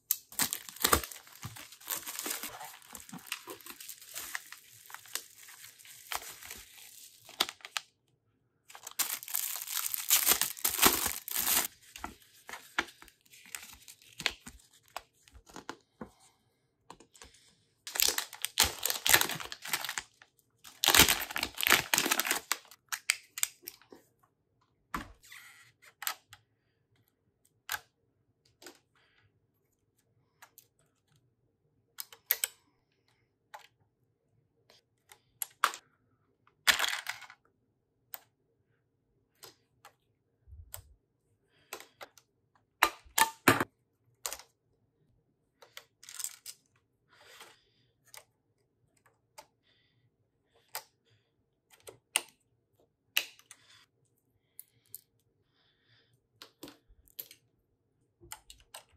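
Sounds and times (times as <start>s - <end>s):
plastic packaging crinkling: 0.1s - 7.8s, 8.7s - 15.0s, 17.9s - 23.5s.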